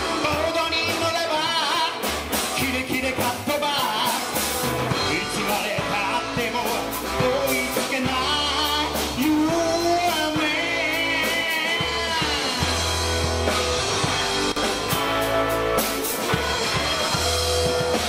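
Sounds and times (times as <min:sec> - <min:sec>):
man singing: 0:00.0 - 0:12.9
drum kit: 0:00.0 - 0:18.0
electric guitars: 0:00.0 - 0:18.0.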